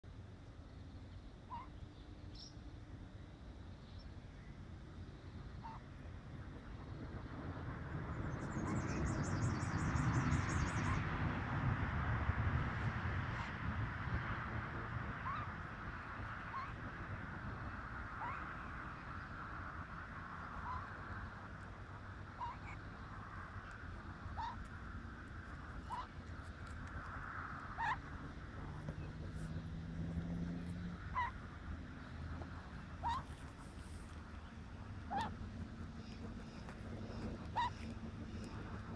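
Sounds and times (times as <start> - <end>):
low outdoor rumble: 0.0 - 38.9.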